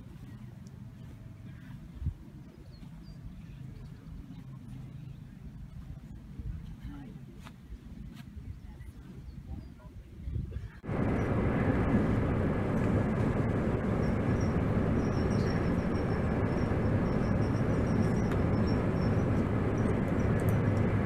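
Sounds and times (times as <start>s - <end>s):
train rumble from inside carriage: 9.8s - 21.0s.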